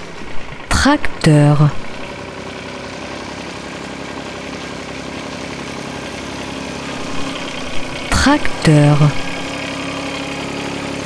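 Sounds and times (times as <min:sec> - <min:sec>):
tractor diesel engine idling: 0:00.0 - 0:11.0.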